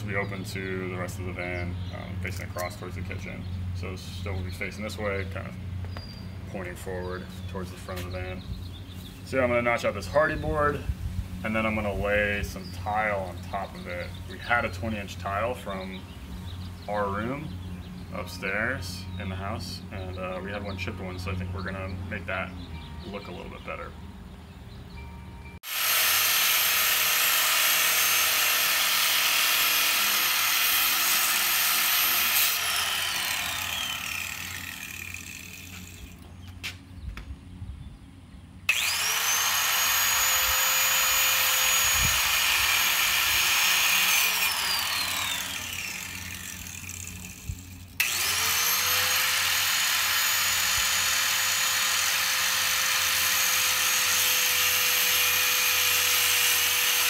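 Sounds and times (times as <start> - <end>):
angle grinder cutting board: 25.6 - 36.2, 38.7 - 57.0.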